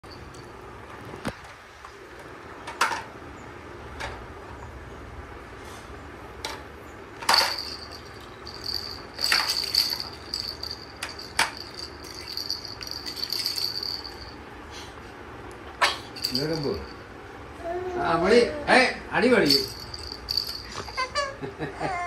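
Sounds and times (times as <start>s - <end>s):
thin high steady tone: 7.4s - 14.5s.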